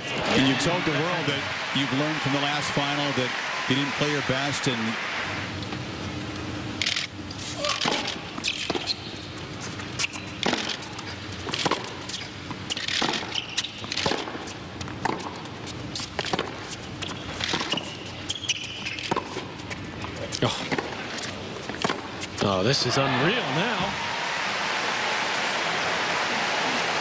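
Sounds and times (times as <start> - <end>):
low crowd hum: 0.0 - 12.6
tennis racket hitting ball: 7.6 - 8.9, 10.4 - 10.9, 12.8 - 15.4, 16.2 - 16.7, 18.9 - 19.5, 20.7 - 22.2.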